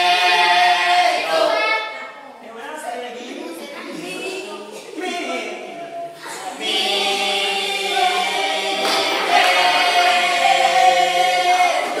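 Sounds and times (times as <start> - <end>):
group of young voices singing: 0.0 - 2.3, 5.8 - 12.0.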